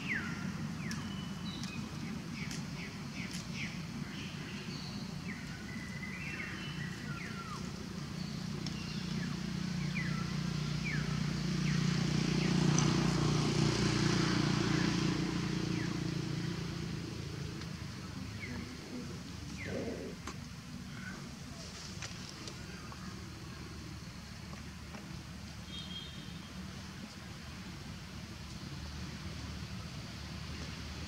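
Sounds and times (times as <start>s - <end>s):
vehicle engine passing by: 6.1s - 20.2s.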